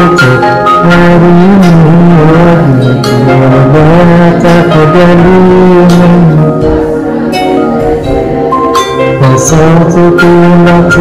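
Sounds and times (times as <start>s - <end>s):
instrumental hymn accompaniment: 0.0s - 11.0s
struck ringing notes: 6.6s - 11.0s.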